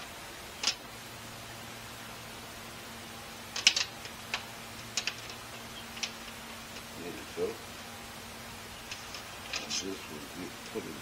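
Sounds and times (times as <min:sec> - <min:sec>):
steady low hum: 0:00.0 - 0:11.0
small plastic parts clicking: 0:03.6 - 0:04.4.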